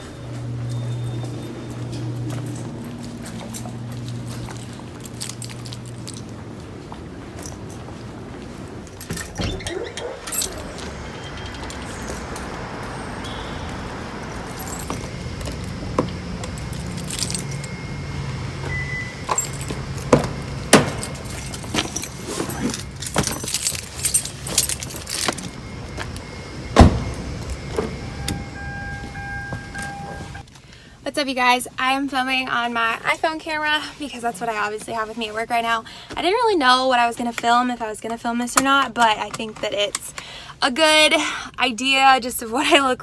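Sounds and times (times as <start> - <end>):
car keys jangling: 0.6 - 6.6, 7.3 - 8.0, 8.6 - 18.0, 18.7 - 25.7
car door shutting: 18.6 - 23.5, 25.2 - 30.4.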